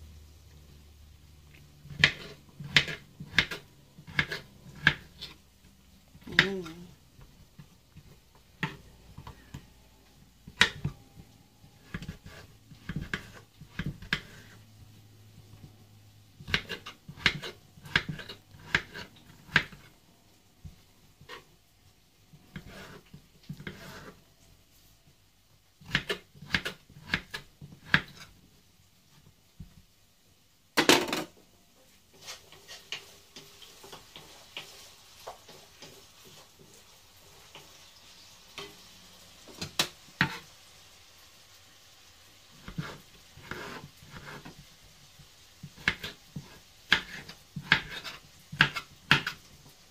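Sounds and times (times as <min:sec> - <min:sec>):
knife chopping on cutting board: 0:01.9 - 0:05.4, 0:11.8 - 0:14.5, 0:16.4 - 0:19.9, 0:25.8 - 0:28.2, 0:42.6 - 0:44.5, 0:45.6 - 0:49.4.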